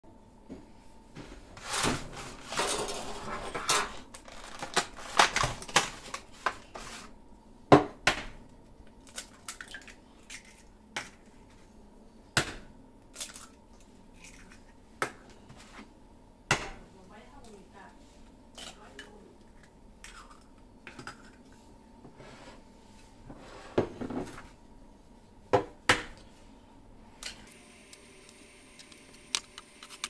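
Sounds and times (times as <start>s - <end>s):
plastic egg carton crinkling: 4.2s - 6.9s.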